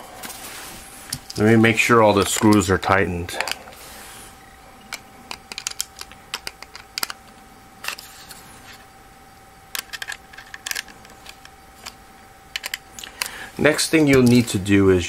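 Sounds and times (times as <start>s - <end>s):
hands handling small drive: 1.1s - 3.9s, 4.8s - 8.9s, 9.7s - 14.6s.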